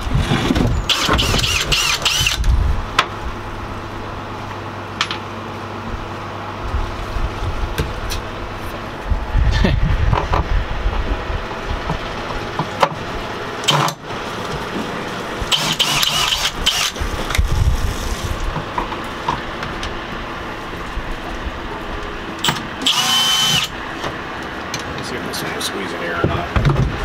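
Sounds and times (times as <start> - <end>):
cordless drill motor whining: 0.9 - 2.5, 15.5 - 17.0, 22.4 - 23.8.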